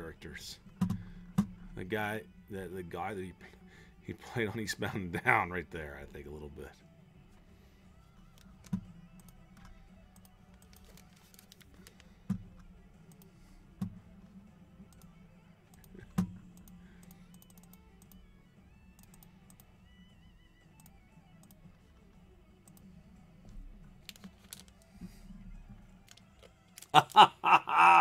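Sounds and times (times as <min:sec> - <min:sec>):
faint background music: 0:00.0 - 0:28.0
soft clicks: 0:15.7 - 0:19.7, 0:20.7 - 0:21.7, 0:22.6 - 0:22.9.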